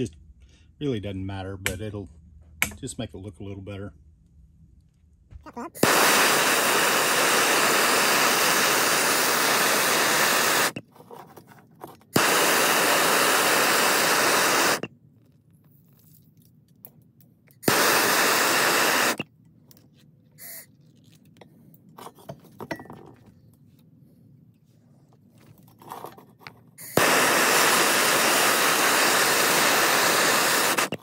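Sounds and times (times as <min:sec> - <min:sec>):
gas torch hissing: 0:05.8 - 0:10.8, 0:12.2 - 0:14.9, 0:17.6 - 0:19.2, 0:26.8 - 0:31.0
faint handling sounds: 0:10.8 - 0:12.2, 0:15.0 - 0:17.6, 0:19.4 - 0:26.9
torch igniter click: 0:12.2 - 0:14.9, 0:17.6 - 0:19.2, 0:26.9 - 0:31.0.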